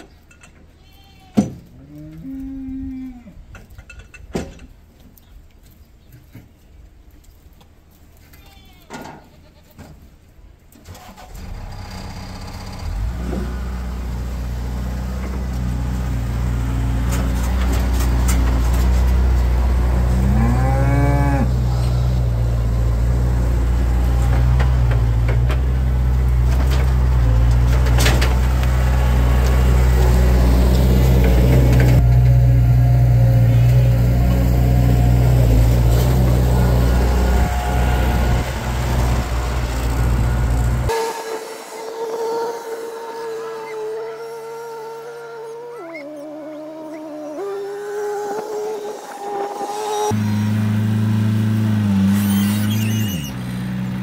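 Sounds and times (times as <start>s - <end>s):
diesel engine humming: 11.0s - 45.5s, 47.6s - 54.0s
cow mooing: 19.8s - 21.9s.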